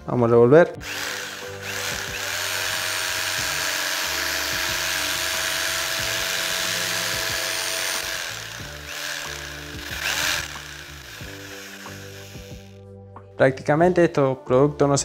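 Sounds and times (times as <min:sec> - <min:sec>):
drill with paddle mixer: 0:00.8 - 0:12.8.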